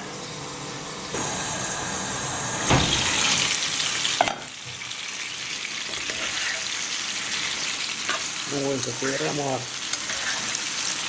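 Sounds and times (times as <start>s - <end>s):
mushrooms sizzling in a frying pan: 1.1s - 11.0s.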